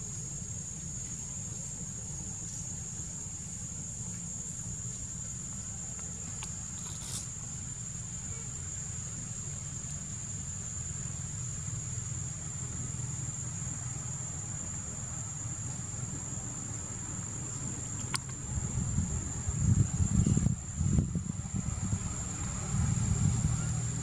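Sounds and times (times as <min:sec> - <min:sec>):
faint click: 0:05.9 - 0:07.3, 0:18.0 - 0:18.4.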